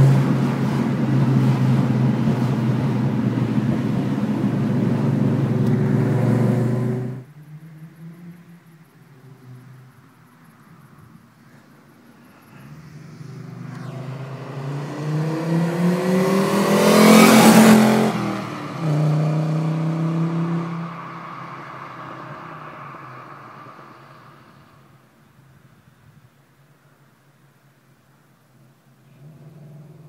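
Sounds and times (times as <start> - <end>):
car engine accelerating past: 0.0 - 9.9, 12.1 - 25.1.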